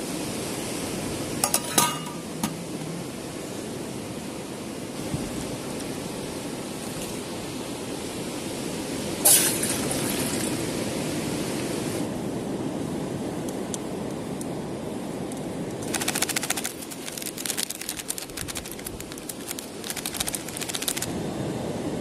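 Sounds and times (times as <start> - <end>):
plastic sachet crinkling: 15.8 - 21.1.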